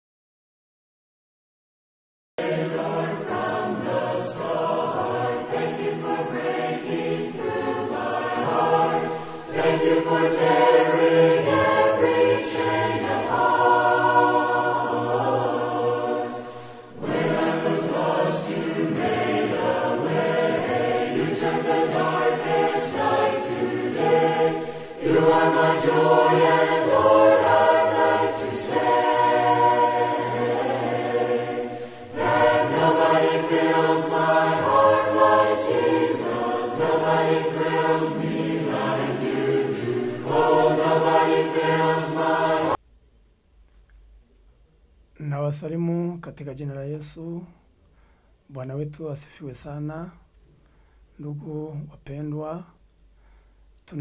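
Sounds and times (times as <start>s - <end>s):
choir singing: 2.4s - 42.8s.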